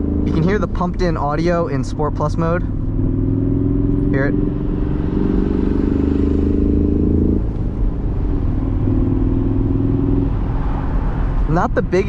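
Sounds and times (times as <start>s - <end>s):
artificial engine sound: 0.0s - 8.2s
car engine running: 0.0s - 12.0s.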